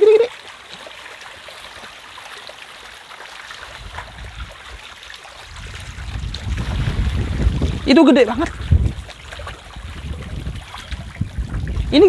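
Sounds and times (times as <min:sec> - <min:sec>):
fish splashing and gulping: 0:00.0 - 0:12.0
wind rumble on microphone: 0:03.7 - 0:04.8, 0:05.4 - 0:12.0.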